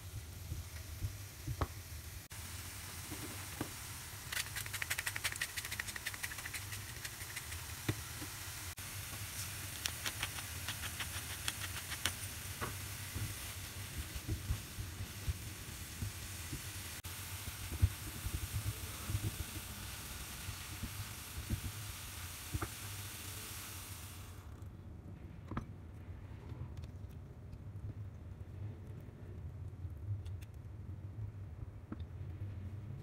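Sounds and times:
vegetables sizzling in oil: 0.0 - 24.5.

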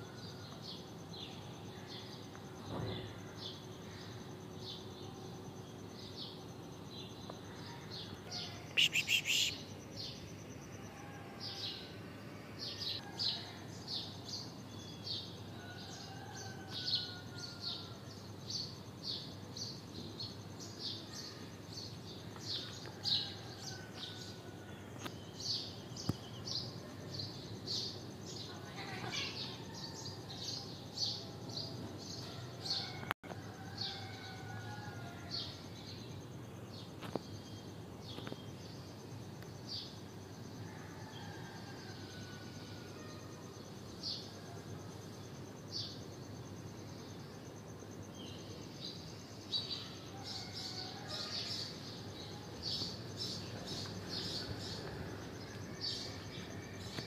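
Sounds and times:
birds chirping: 7.2 - 10.2.

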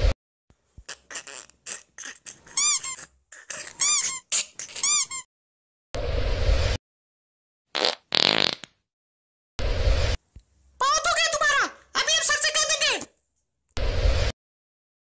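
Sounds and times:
cartoon high squeaks: 0.9 - 5.3
burst of noise: 13.8 - 14.3.

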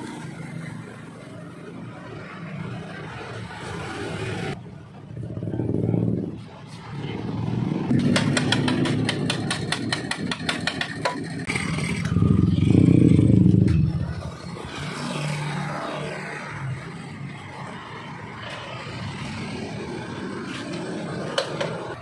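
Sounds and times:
motorcycle engine revving: 7.1 - 16.8.

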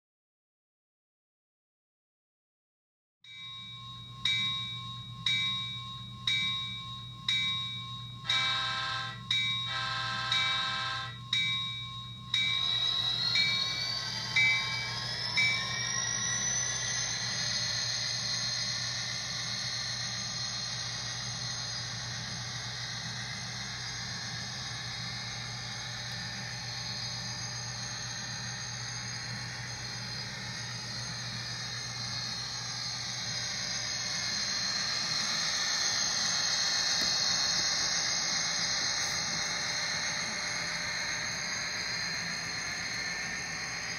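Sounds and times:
locomotive engine whine and drone: 3.3 - 43.9
model locomotive bell ringing: 3.3 - 43.9
locomotive horn blasts: 8.3 - 11.2.

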